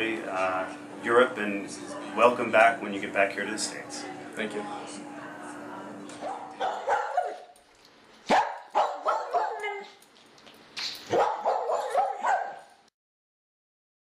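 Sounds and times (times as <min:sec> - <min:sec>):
dog barking: 0:06.2 - 0:07.6, 0:08.3 - 0:09.9, 0:11.1 - 0:12.7.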